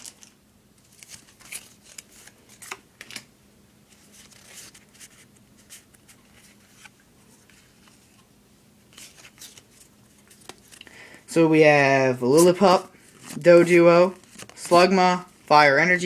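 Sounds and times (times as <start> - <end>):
cards flicking and rubbing: 8.9 - 10.8.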